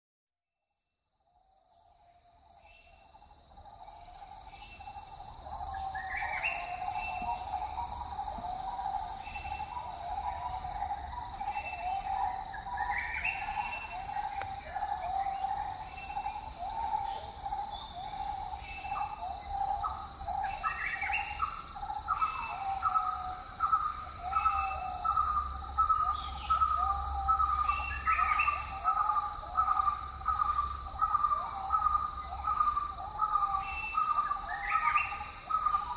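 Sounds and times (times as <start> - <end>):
high insect whine: 1.4 - 35.9.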